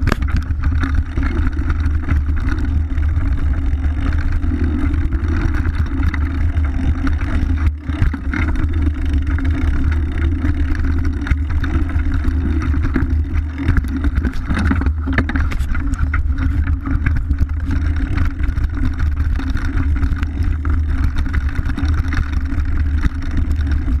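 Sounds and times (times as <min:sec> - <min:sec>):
bike knocking and rattling: 0:00.0 - 0:24.0
wind rumble on microphone: 0:00.0 - 0:24.0.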